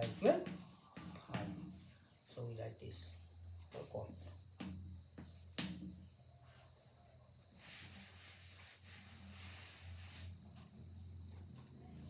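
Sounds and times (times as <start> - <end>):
high-pitched insect chorus: 0.0 - 12.0
rubbing on a chalkboard: 7.5 - 10.7.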